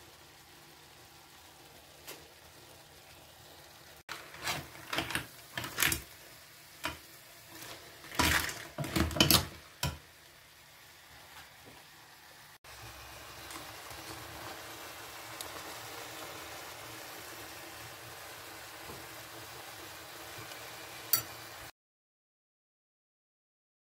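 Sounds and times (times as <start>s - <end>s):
low sizzle: 0.0s - 21.7s
crab shells scraping in a pan: 4.1s - 10.2s, 12.8s - 17.6s.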